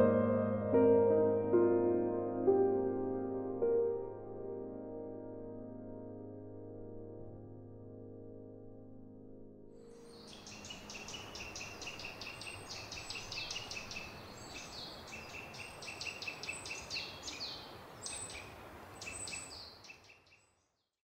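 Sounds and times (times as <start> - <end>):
forest ambience: 9.8 - 21.0
small birds chirping: 9.9 - 21.0.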